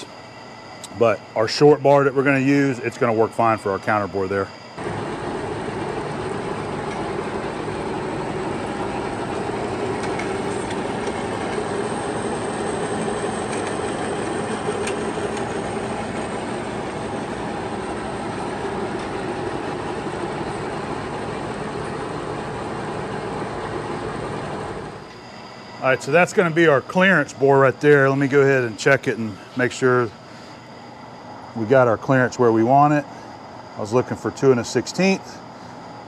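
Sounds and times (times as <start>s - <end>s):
lathe running: 0.0s - 36.0s.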